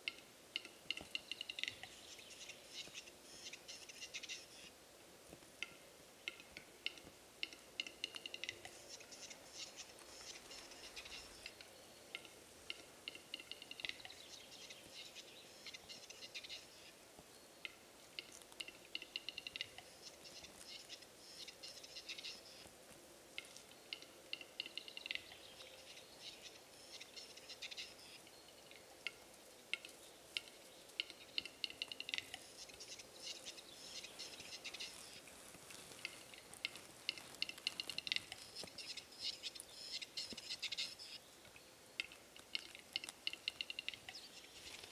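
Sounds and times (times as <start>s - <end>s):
bird dry clicks: 0.0s - 2.0s, 5.6s - 14.3s, 17.6s - 19.9s, 23.4s - 25.8s, 28.7s - 32.5s, 35.9s - 38.9s, 42.0s - 44.9s.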